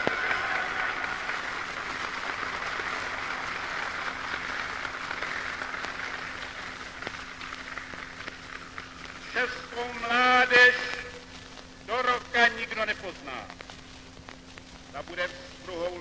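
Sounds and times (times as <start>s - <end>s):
large crowd applauding: 0.0s - 11.0s
steady low hum: 0.0s - 16.0s.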